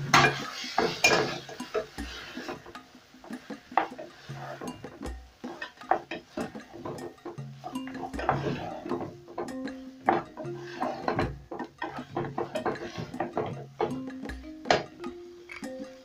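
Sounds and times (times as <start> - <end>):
spoon scraping a metal pot: 0.0 - 14.9
soft background music: 0.0 - 16.0.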